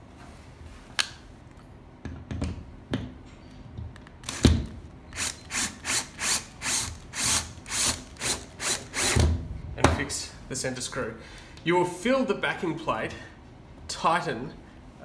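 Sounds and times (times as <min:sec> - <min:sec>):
cordless drill driving screw: 0:04.2 - 0:09.2.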